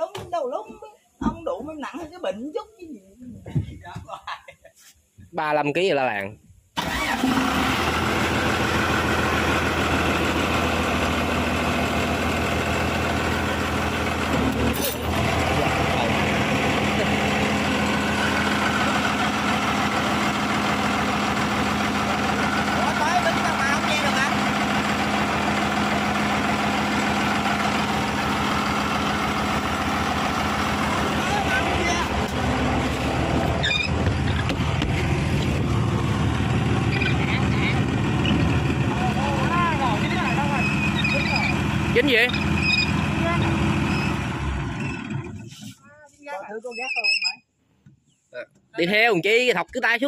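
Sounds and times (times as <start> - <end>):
diesel boat engine idling: 6.8 - 45.4.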